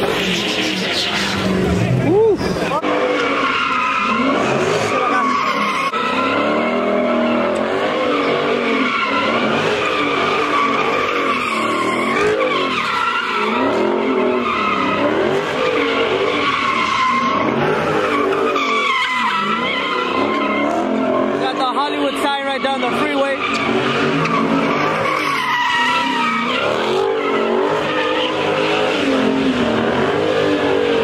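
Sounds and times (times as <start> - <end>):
car engine revving: 0.0 - 31.0
tyres screeching: 0.0 - 31.0.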